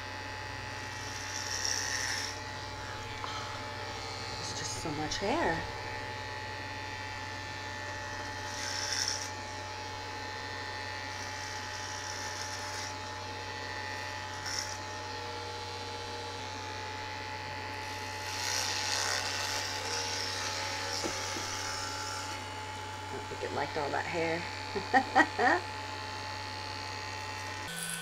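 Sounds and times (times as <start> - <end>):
electric hair clippers buzzing: 0.0 - 28.0
clipper blades rasping through hair: 0.6 - 15.0, 15.7 - 28.0.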